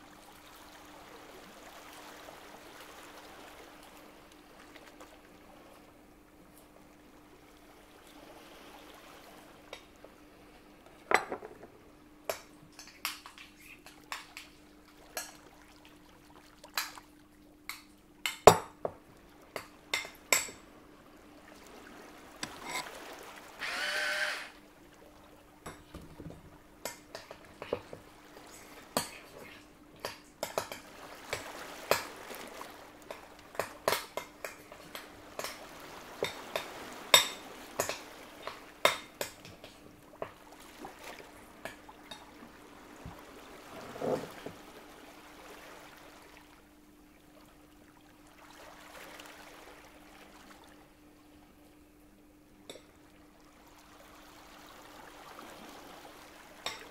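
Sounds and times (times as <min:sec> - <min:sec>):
faint steady hum: 0:00.0 - 0:56.9.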